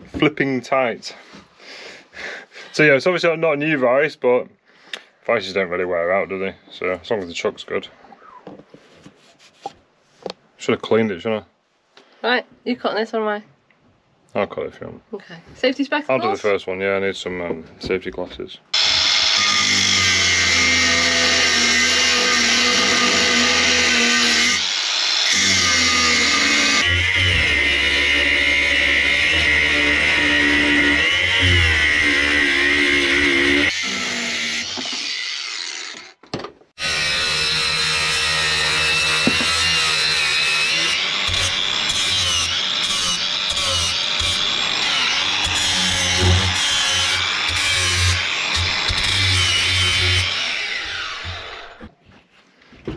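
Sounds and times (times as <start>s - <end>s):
angle grinder cutting steel: 18.8s - 36.2s, 36.8s - 51.8s.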